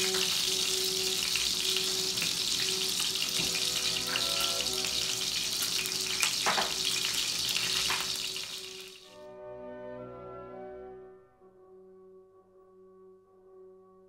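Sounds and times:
burgers sizzling in a skillet: 0:00.0 - 0:09.1.

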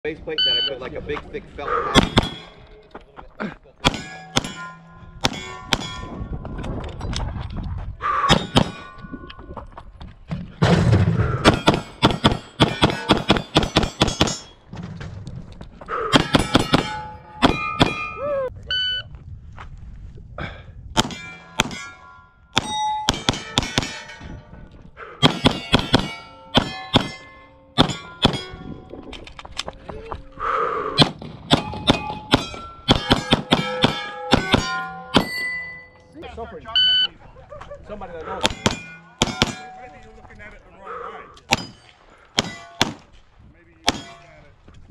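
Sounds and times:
pistol shots: 0:02.0 - 0:02.6, 0:03.8 - 0:06.1, 0:08.3 - 0:08.8, 0:11.4 - 0:14.5, 0:16.1 - 0:18.2, 0:21.0 - 0:22.0, 0:22.6 - 0:24.2, 0:25.2 - 0:28.6, 0:31.0 - 0:35.4, 0:38.4 - 0:39.7, 0:41.5 - 0:43.1, 0:43.8 - 0:44.3
steel plate ringing: 0:03.8 - 0:06.4, 0:11.4 - 0:14.7, 0:16.2 - 0:18.3, 0:21.0 - 0:24.6, 0:25.2 - 0:28.9, 0:31.5 - 0:36.2, 0:38.4 - 0:40.1, 0:41.5 - 0:42.9.

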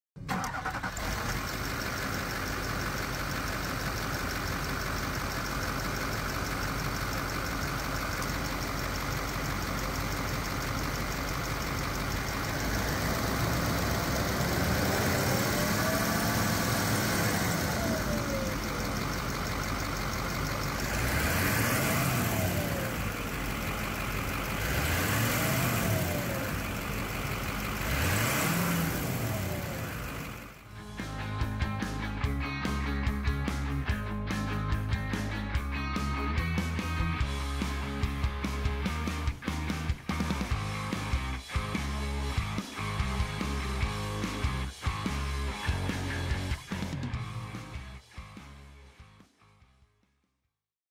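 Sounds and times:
diesel engine idling with clatter: 0:00.2 - 0:48.4
engine revving: 0:00.3 - 0:03.0, 0:09.6 - 0:35.3, 0:36.0 - 0:47.8.

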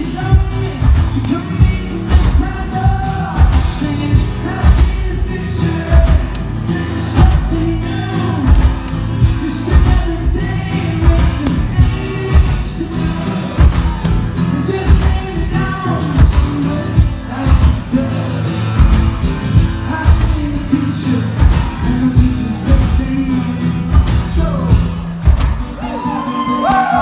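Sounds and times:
tambourine shaken: 0:00.0 - 0:18.1, 0:18.8 - 0:20.7, 0:26.6 - 0:27.0
man singing: 0:00.0 - 0:25.2
acoustic guitar strummed: 0:00.0 - 0:27.0
cajon beaten: 0:00.0 - 0:27.0.

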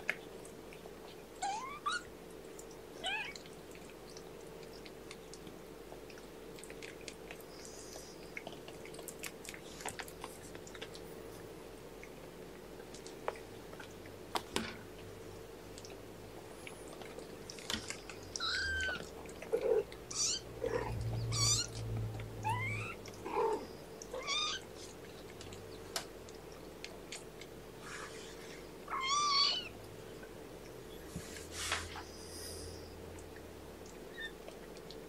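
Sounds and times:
kittens mewing: 0:18.4 - 0:24.6.

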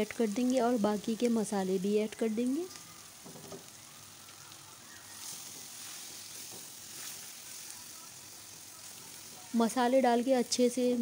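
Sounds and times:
oil sizzling in frying pan: 0:00.0 - 0:11.0
spatula stirring: 0:05.0 - 0:08.2.

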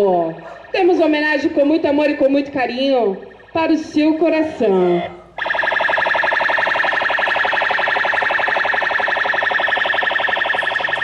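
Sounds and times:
recorded announcement: 0:00.0 - 0:06.0, 0:08.3 - 0:11.0
pulsing electronic alarm tone: 0:00.0 - 0:11.0.

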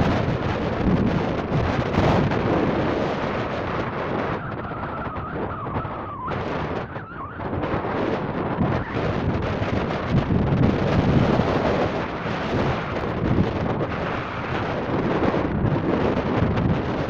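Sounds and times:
wind buffeting microphone: 0:00.0 - 0:17.0
faint wavering whine: 0:02.2 - 0:10.3.

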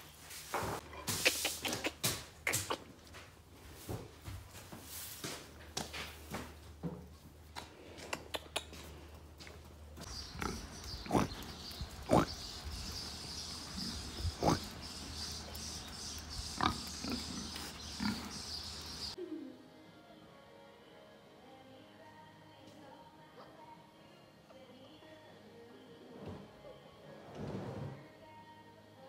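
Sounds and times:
pigs grunting: 0:10.0 - 0:19.2.

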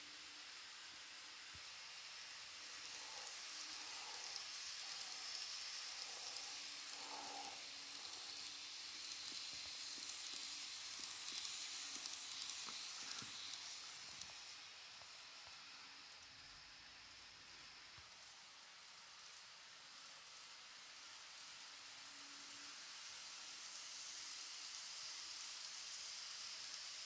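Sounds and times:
faint motor hum: 0:00.0 - 0:20.1
model train wheels hissing on track: 0:00.0 - 0:27.0.

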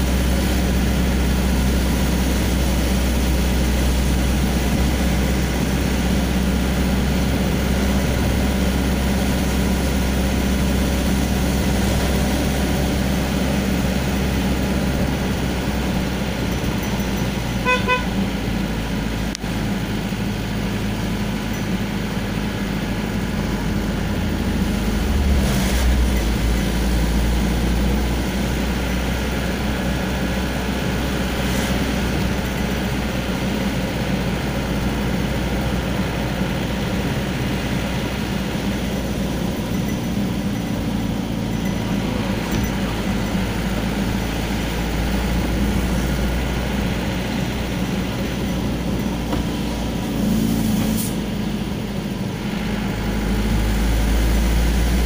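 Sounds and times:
vehicle engine and road noise: 0:00.0 - 0:55.0
car horn beeps: 0:17.6 - 0:18.3.

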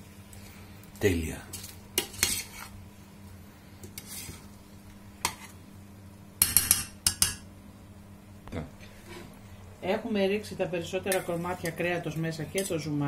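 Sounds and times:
metal spoon scraping metal pot: 0:02.0 - 0:02.7, 0:12.5 - 0:12.8.

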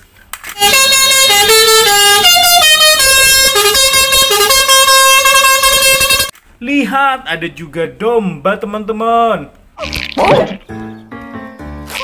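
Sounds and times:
air horns playing a tune: 0:00.6 - 0:06.3.

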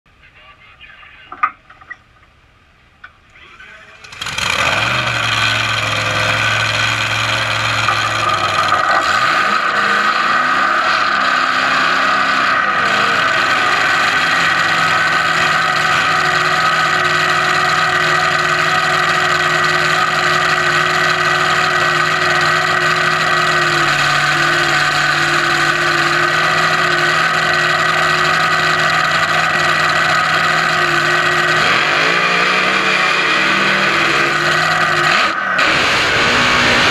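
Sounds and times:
dragster engine idling loudly: 0:03.9 - 0:09.3, 0:12.8 - 0:36.9.

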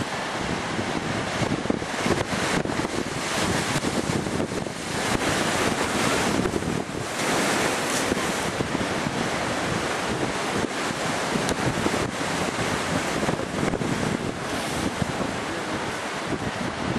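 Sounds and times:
rough sea waves: 0:00.0 - 0:16.9
wind buffeting microphone: 0:00.0 - 0:16.9.

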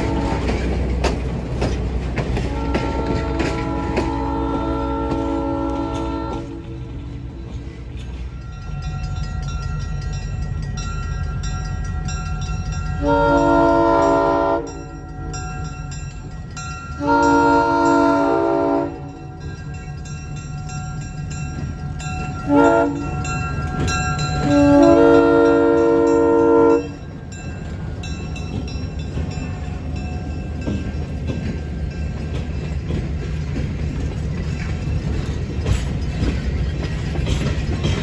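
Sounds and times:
train horn blasts: 0:00.0 - 0:00.7, 0:02.4 - 0:07.2, 0:13.0 - 0:15.4, 0:17.0 - 0:19.3, 0:22.4 - 0:27.0
train rumble: 0:00.0 - 0:38.0.

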